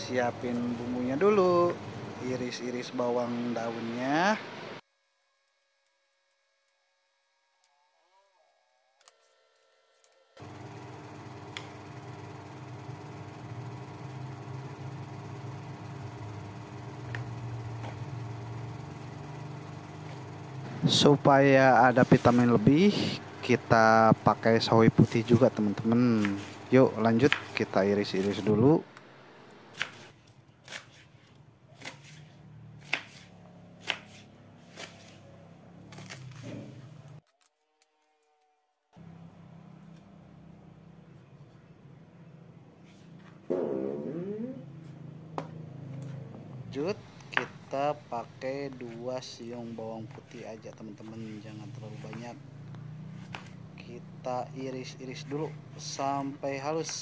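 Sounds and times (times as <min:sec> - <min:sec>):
motor humming: 0:10.4 - 0:29.8
knife slicing cabbage: 0:25.0 - 0:28.5, 0:29.7 - 0:35.3, 0:35.9 - 0:36.8.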